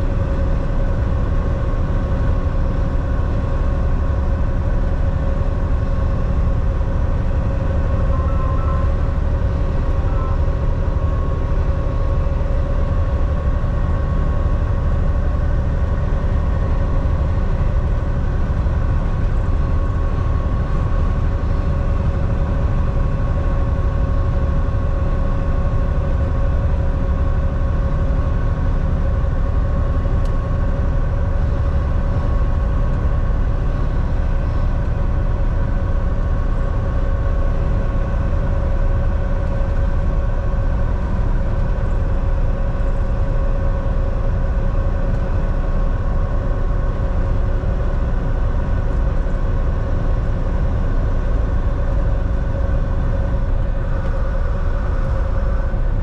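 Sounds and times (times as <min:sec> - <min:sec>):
truck diesel engine rumble: 0:00.0 - 0:56.0.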